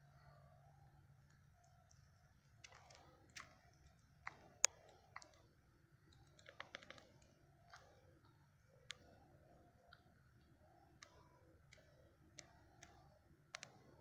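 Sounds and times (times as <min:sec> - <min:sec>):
faint sharp clicks: 0:06.1 - 0:09.2, 0:09.8 - 0:14.0.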